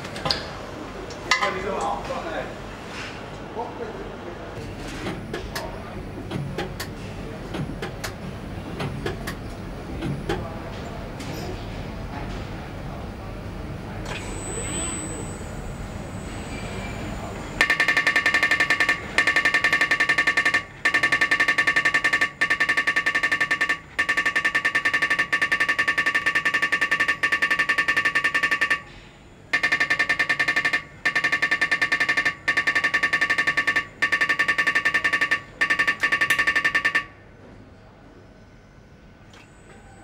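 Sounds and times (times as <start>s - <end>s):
marking machine stylus hammering metal: 17.6s - 28.9s, 29.5s - 37.1s.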